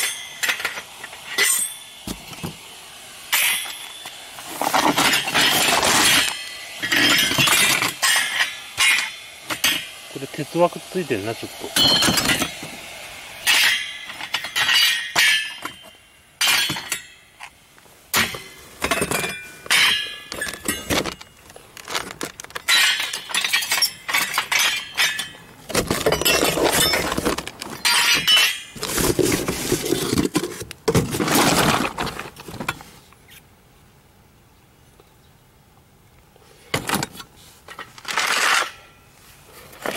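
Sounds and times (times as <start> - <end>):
metal scrap clattering: 0.0 - 2.6, 3.3 - 10.0, 11.8 - 12.7, 13.4 - 17.5, 18.1 - 32.8, 36.8 - 39.0.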